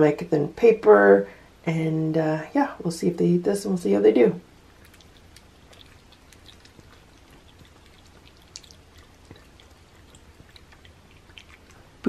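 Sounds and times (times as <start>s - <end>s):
cats lapping and chewing food: 4.6s - 12.0s.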